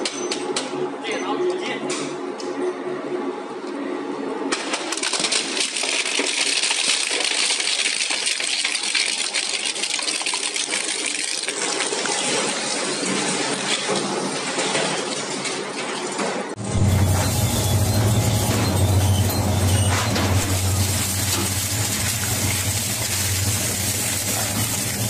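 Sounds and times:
industrial shredder grinding: 0:16.6 - 0:25.0.

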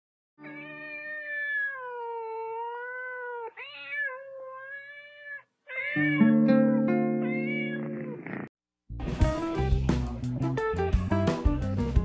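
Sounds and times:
cat meowing: 0:00.4 - 0:08.5.

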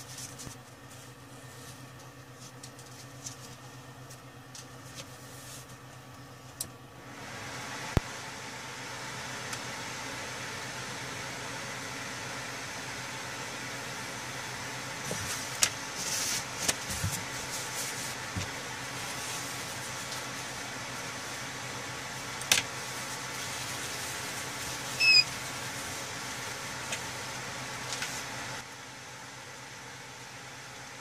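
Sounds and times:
fan hiss: 0:00.0 - 0:31.0
high squeak: 0:25.0 - 0:25.3.

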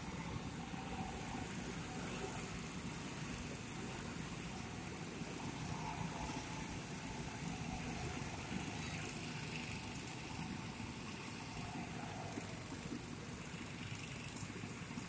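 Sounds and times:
go-kart engines humming: 0:00.0 - 0:15.0
high-pitched hiss: 0:00.0 - 0:15.0.

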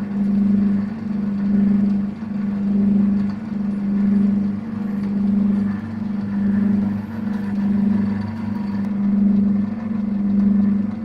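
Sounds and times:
lathe motor humming: 0:00.0 - 0:11.0.

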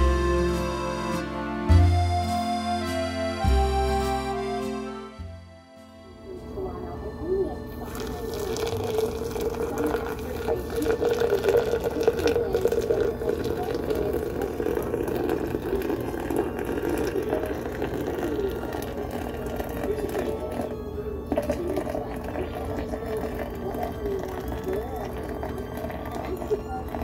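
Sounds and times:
water pouring onto coffee grounds: 0:07.8 - 0:27.0.

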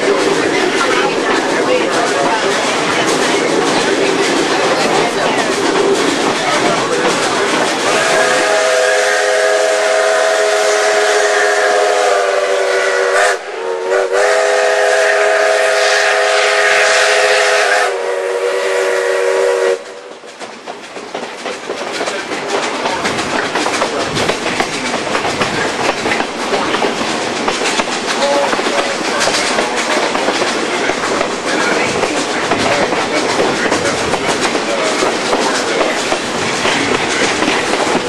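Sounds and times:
train wheels clicking over rails: 0:00.0 - 0:38.0
steam locomotive chime whistle: 0:07.9 - 0:20.1.

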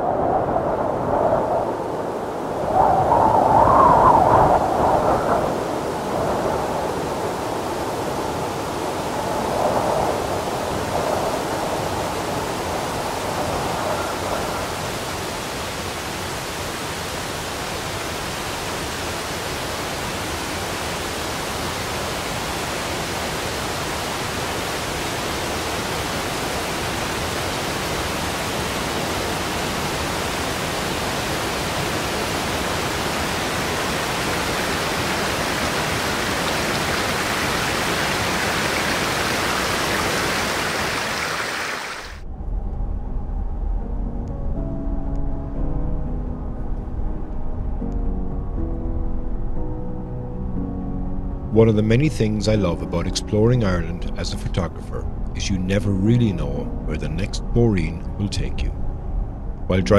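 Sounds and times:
waterfall rushing: 0:10.2 - 0:42.2.

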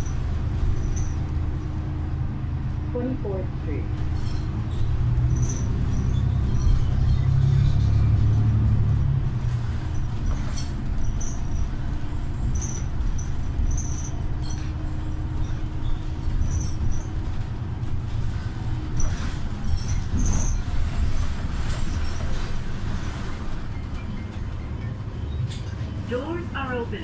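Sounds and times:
body squeaks and rattles: 0:00.0 - 0:01.9, 0:03.9 - 0:26.4
bus engine rumble: 0:00.0 - 0:27.0.

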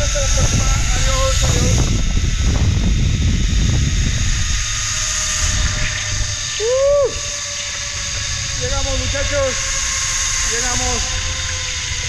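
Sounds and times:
pulleys whining on cable: 0:00.0 - 0:12.0
wind rushing over microphone: 0:00.0 - 0:12.0
person crying out: 0:06.6 - 0:07.3.

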